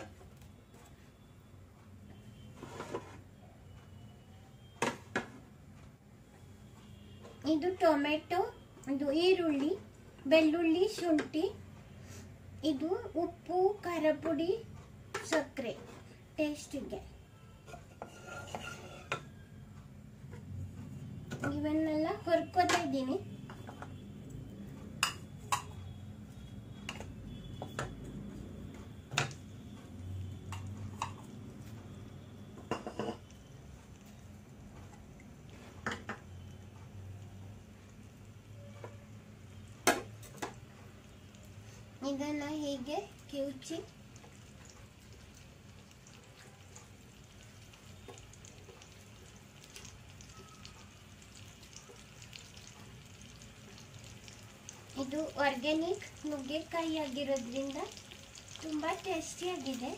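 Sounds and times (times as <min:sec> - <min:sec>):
vegetables sizzling in a pan: 0:37.4 - 0:59.9.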